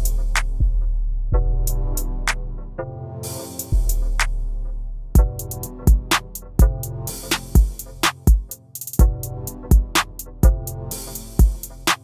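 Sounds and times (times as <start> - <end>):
hi-hat ticks: 0.0 - 0.9, 3.4 - 4.4, 5.2 - 12.0.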